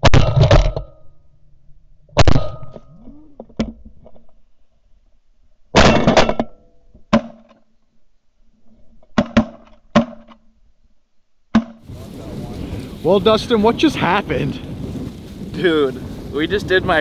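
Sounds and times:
shotgun blasts: 2.2s - 2.8s, 5.8s - 6.4s.

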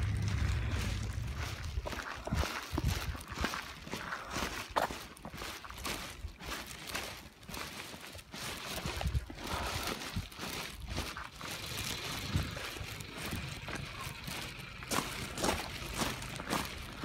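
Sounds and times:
low uneven rumble: 0.0s - 4.3s, 9.0s - 17.0s
footsteps on pavement: 0.0s - 17.0s.

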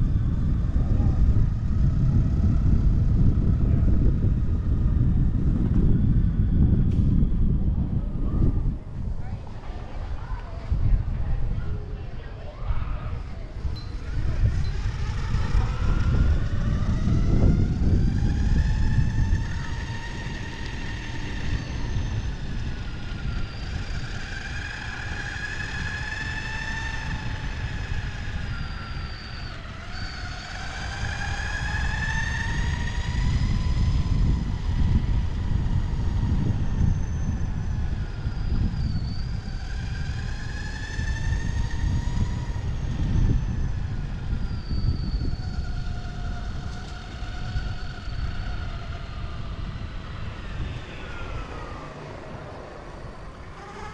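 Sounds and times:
whine rising and falling in pitch: 0.0s - 53.9s.

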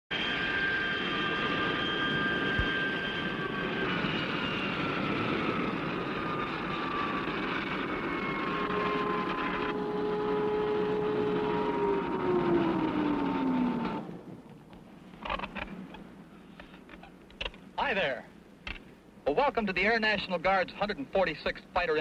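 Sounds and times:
high whining tones: 0.1s - 17.6s
aircraft engine rumbling: 0.1s - 21.8s.

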